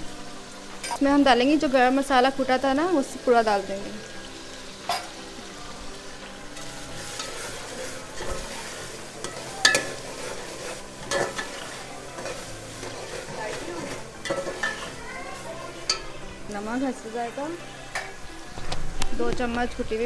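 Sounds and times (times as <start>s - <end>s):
sauce sizzling in a pot: 0.0s - 20.0s
metal spoon clinking against pot: 9.2s - 15.0s, 15.8s - 16.2s.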